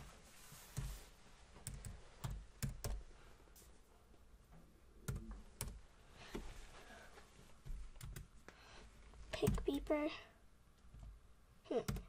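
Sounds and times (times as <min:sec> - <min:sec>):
computer keyboard keystrokes: 0:01.6 - 0:03.0, 0:08.0 - 0:08.3.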